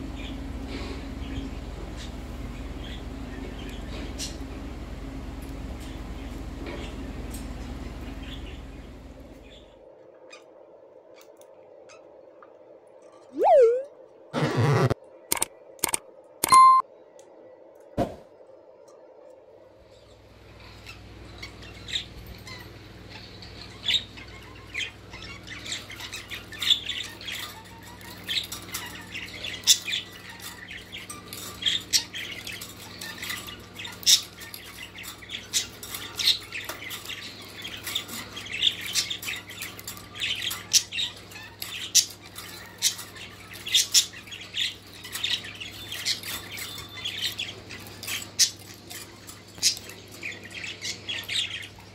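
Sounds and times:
parakeet chirping and squawking: 13.4s - 16.8s, 20.9s - 51.9s.

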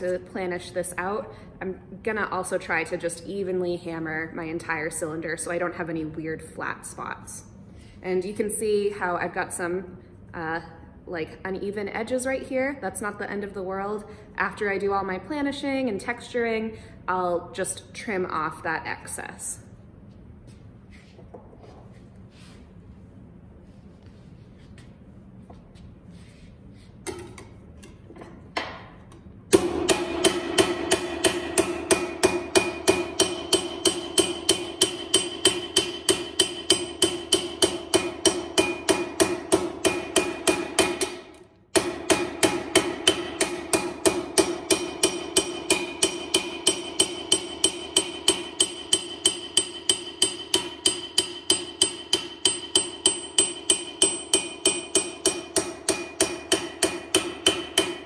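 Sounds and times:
hammer ringing on sheet metal: 29.5s - 58.0s.

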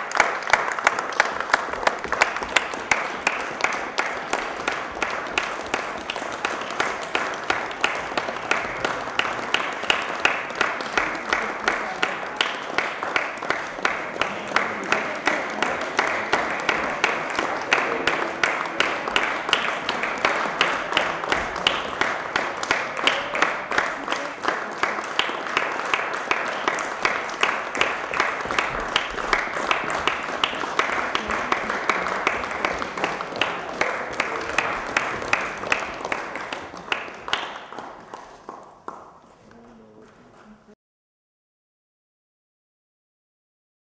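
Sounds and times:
audience clapping in rhythm: 0.0s - 40.8s.

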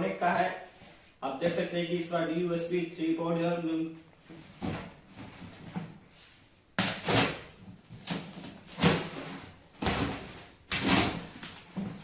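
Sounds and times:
box cutter slicing packing tape: 6.8s - 7.5s, 10.7s - 11.4s.

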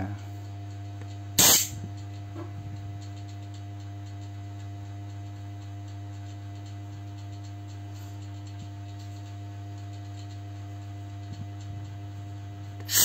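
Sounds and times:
low electrical hum: 0.0s - 13.0s.

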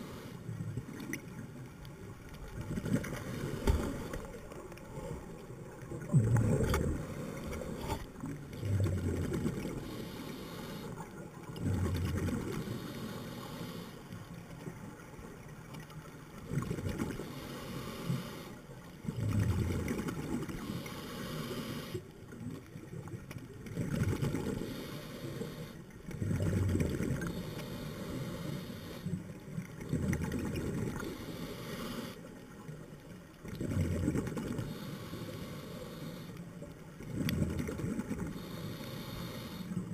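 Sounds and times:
exhaled bubbles rumbling: 2.0s - 10.0s, 11.4s - 12.6s, 19.0s - 20.5s, 26.1s - 27.4s, 29.6s - 31.2s, 33.4s - 34.7s, 37.0s - 38.5s
regulator inhalation hiss: 20.6s - 22.0s, 34.7s - 36.4s, 38.4s - 39.8s.

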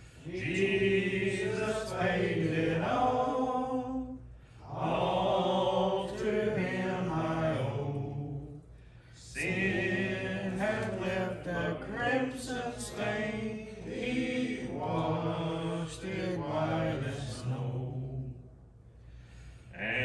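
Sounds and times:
congregation singing a hymn: 0.0s - 8.6s, 9.2s - 18.4s, 19.8s - 20.0s.

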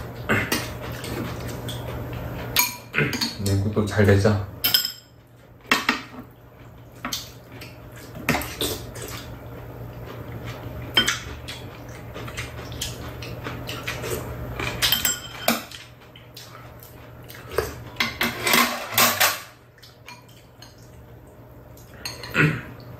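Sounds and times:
low steady hum: 0.0s - 22.9s
utensils clinking against bowls: 0.2s - 6.3s, 10.9s - 16.6s, 17.3s - 20.8s, 21.8s - 22.4s.

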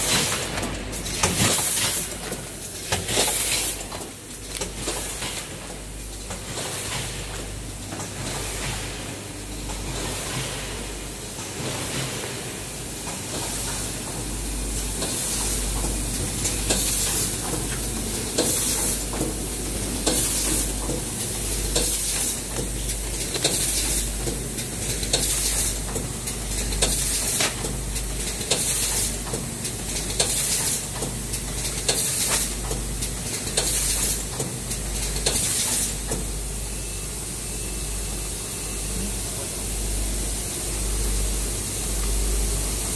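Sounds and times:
machine clicking and clattering: 0.0s - 8.9s, 15.0s - 36.3s.

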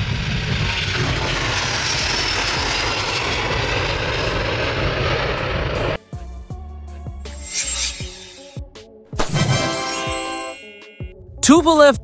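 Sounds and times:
jet engines at takeoff: 0.0s - 6.0s.

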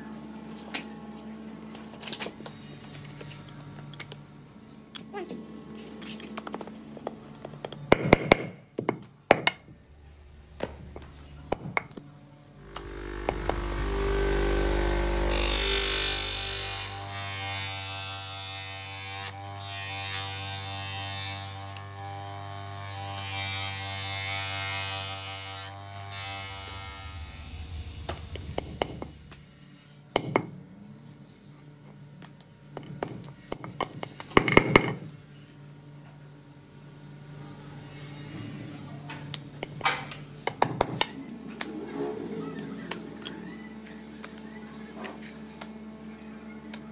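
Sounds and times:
blade grinding on wheel: 12.6s - 17.8s
bench grinder motor: 12.6s - 29.8s.

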